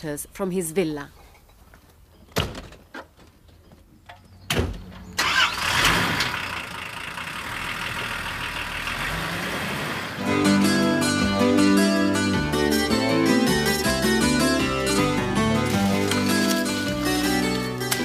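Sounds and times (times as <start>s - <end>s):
car engine starting and idling: 5.0s - 10.3s.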